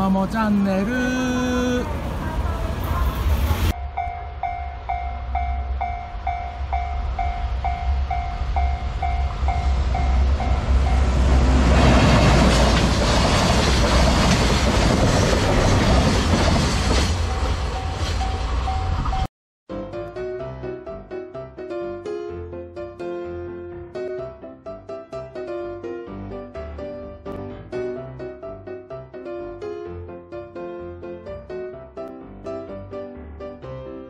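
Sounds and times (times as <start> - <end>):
train passing on rails: 0.0 - 19.3.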